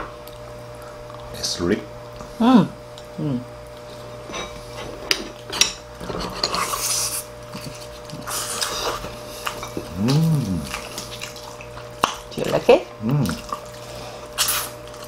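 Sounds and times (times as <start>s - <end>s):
person humming: 2.4s - 3.5s, 9.8s - 10.8s, 13.0s - 13.4s
noisy chewing mouth sounds: 6.8s - 15.0s.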